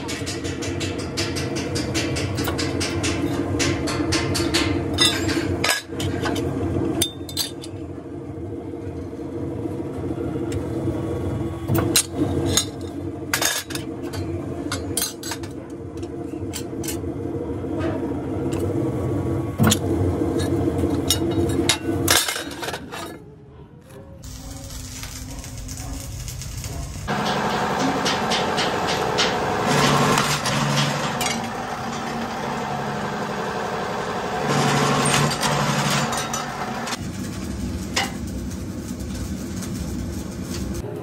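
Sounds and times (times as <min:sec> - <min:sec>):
sharp metal clanks: 0:27.1 - 0:32.2
hydraulic pump motor humming: 0:27.1 - 0:36.9.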